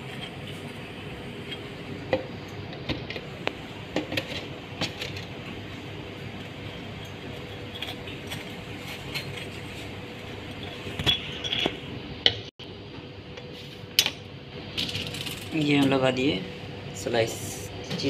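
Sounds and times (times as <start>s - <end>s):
kitchen hum: 0.0s - 18.0s
metal spoon clinking and scraping: 6.7s - 9.9s.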